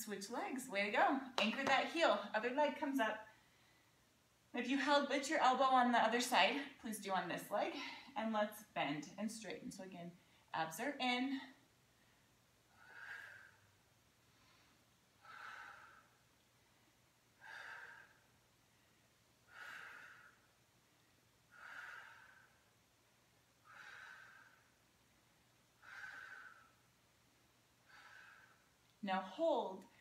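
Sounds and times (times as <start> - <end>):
woman breathing: 3.3 - 4.1, 7.6 - 8.2, 10.2 - 10.6, 11.4 - 23.0, 23.6 - 27.2, 27.8 - 29.0.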